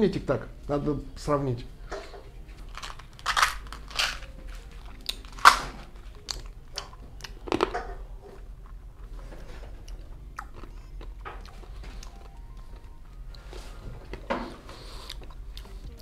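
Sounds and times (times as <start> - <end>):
mints being crunched: 2.6 - 7.8
quiet chewing clicks: 9.8 - 13.4.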